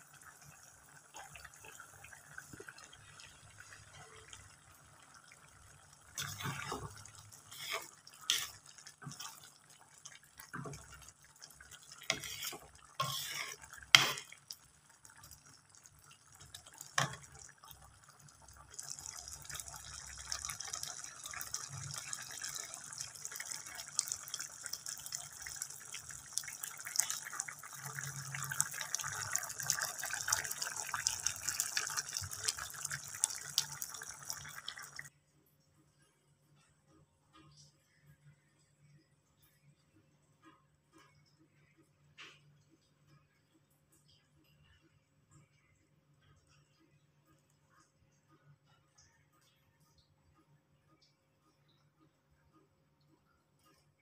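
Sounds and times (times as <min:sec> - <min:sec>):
curry bubbling and crackling: 0:00.0 - 0:35.2
spatula knocking and scraping pan: 0:06.2 - 0:09.4, 0:12.0 - 0:14.4.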